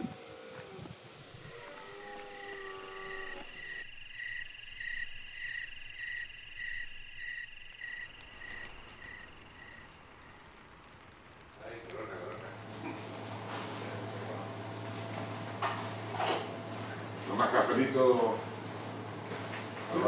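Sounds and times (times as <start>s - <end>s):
calling animals: 0.0s - 3.8s
crickets and insects trilling: 0.0s - 12.6s.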